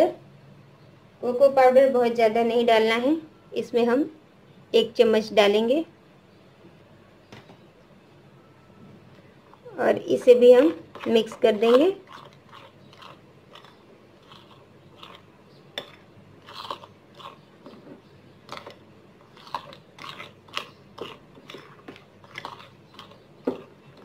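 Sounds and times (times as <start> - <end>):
spoon stirring batter in glass bowl: 9.5 - 24.0.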